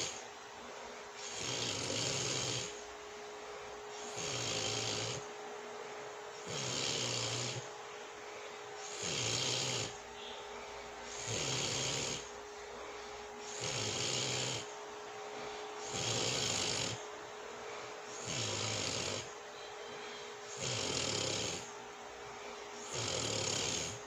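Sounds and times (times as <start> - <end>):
faint steady hum: 0.0 - 24.0
woman snoring: 1.2 - 2.8, 4.0 - 5.3, 6.4 - 7.7, 8.8 - 10.4, 11.1 - 12.4, 13.4 - 14.7, 15.8 - 17.0, 18.2 - 19.3, 20.5 - 21.7, 22.8 - 24.0.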